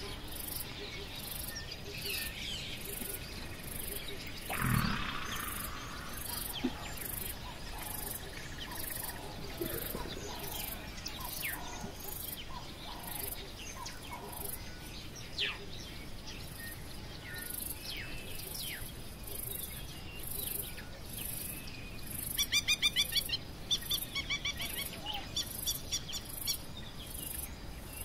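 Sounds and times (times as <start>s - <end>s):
bird chirps: 1.0s - 11.9s
short low grunt: 4.5s - 7.3s
insect high-pitched pulsing: 4.5s - 9.2s.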